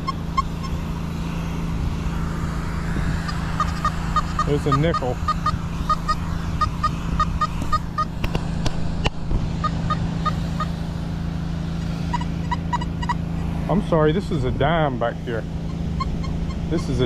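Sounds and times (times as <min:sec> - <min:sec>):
metal detector beeping: 0:00.0 - 0:00.8, 0:03.3 - 0:08.2, 0:12.1 - 0:13.2, 0:15.7 - 0:17.0
steady low hum: 0:00.0 - 0:17.0.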